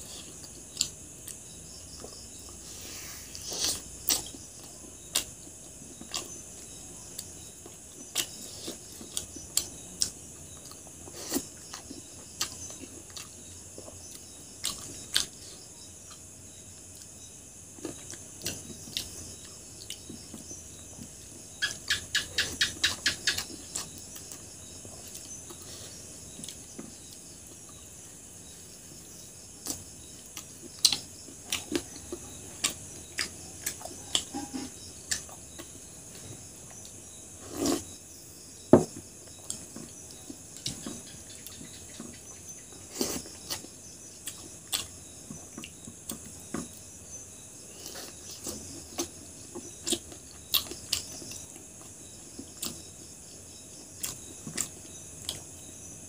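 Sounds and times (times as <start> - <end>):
crickets chirring: 0.0 - 56.0.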